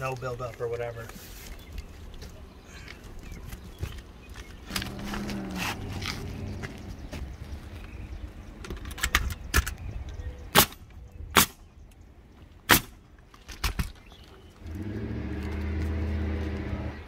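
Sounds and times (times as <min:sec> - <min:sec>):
low engine hum: 0:03.3 - 0:08.7, 0:14.5 - 0:17.0
nail gun firing: 0:10.5 - 0:10.8, 0:11.4 - 0:11.6, 0:12.7 - 0:13.0.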